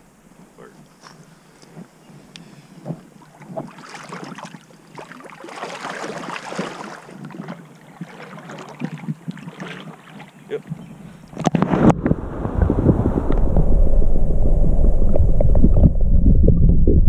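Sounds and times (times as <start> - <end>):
river water splashing: 2.5 - 13.6
patter of small splashes: 2.8 - 12.7.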